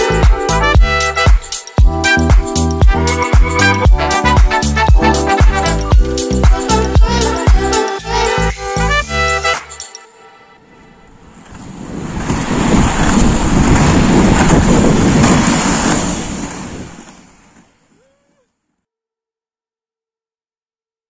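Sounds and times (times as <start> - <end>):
wind buffeting microphone: 10.7 - 17.6
skate wheels rolling on asphalt: 10.7 - 17.9.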